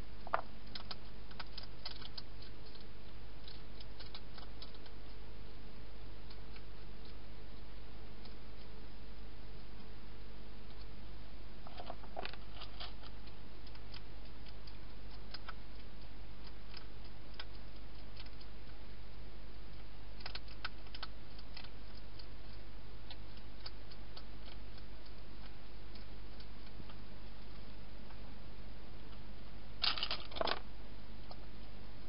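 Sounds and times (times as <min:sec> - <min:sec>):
low hum: 0:00.0 - 0:32.0
hedgehog chewing: 0:00.2 - 0:08.9, 0:11.6 - 0:28.2.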